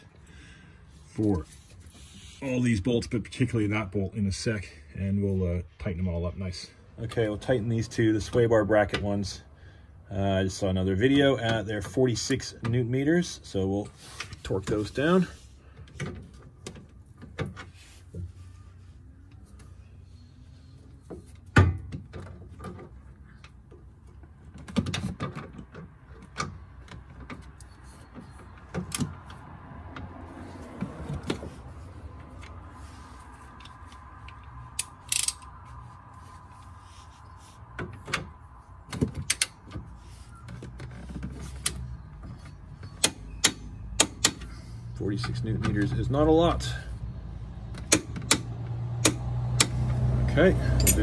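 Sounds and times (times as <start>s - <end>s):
torque wrench clicking: 34.7s - 35.5s.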